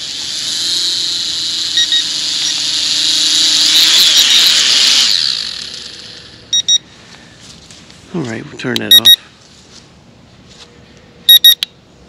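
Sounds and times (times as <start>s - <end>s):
drone propeller motors whining: 0.0s - 6.9s
transmitter double beep: 6.5s - 6.8s, 8.8s - 9.2s, 11.3s - 11.7s.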